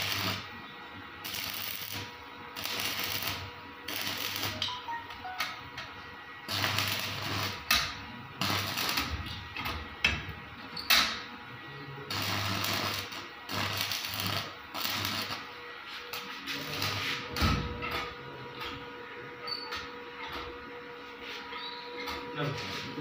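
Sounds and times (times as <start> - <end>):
arc welder crackling: 0.0 - 5.0, 5.7 - 11.4, 12.1 - 17.4
low electrical hum: 0.0 - 23.0.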